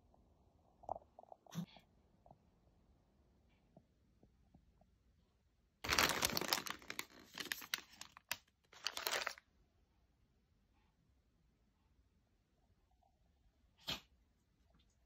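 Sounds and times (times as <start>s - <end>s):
plastic packaging crinkling: 5.8s - 9.4s.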